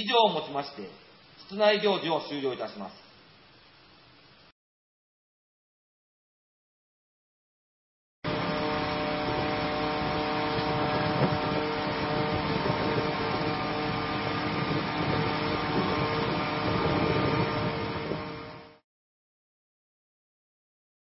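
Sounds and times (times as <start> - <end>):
pump engines droning: 8.3 - 18.8
water jets rushing: 8.4 - 18.6.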